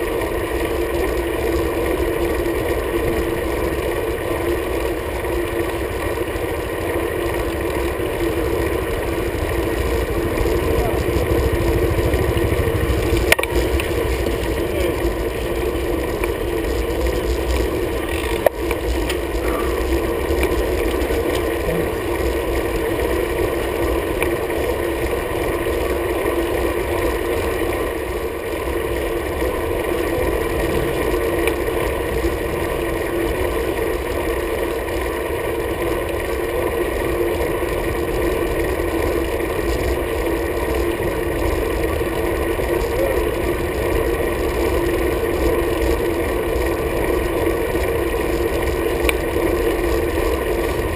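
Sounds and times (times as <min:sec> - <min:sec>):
tyre and road rumble: 0:05.2 - 0:27.8, 0:28.5 - 0:34.4.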